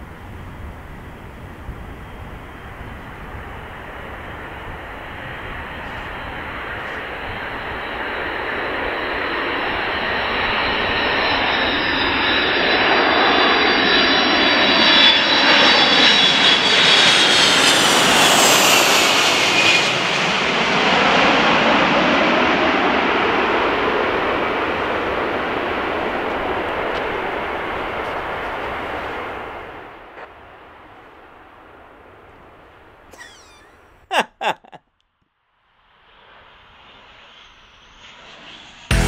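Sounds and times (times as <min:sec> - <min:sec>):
high fan whine: 0:00.0 - 0:13.0
jet aircraft roar passing overhead: 0:00.0 - 0:33.9, 0:35.9 - 0:39.0.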